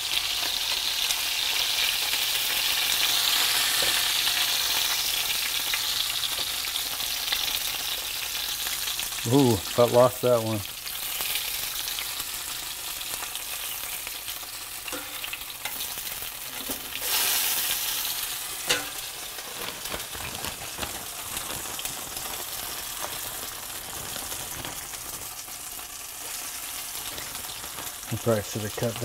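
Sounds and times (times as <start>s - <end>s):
meat sizzling in hot oil: 0.0s - 29.0s
ticks of tongs and pans: 14.9s - 15.9s, 18.6s - 19.1s.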